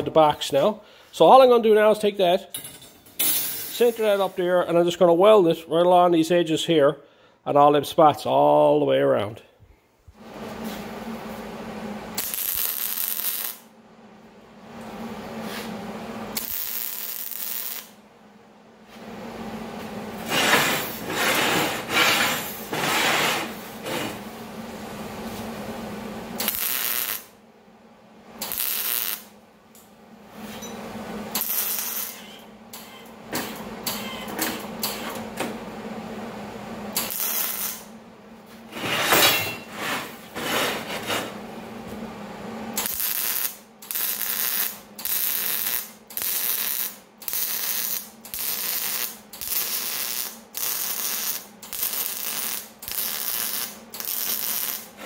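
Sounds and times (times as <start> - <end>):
welding arc crackling: 12.1 - 13.7, 15.5 - 18.0, 20.2 - 22.7, 26.1 - 27.4, 28.4 - 29.4, 31.2 - 32.3, 36.9 - 37.9, 42.7 - 55.0.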